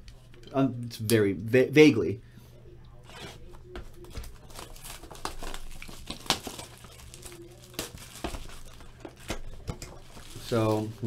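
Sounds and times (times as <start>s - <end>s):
plastic shrink-wrap crinkling: 3.9s - 11.0s.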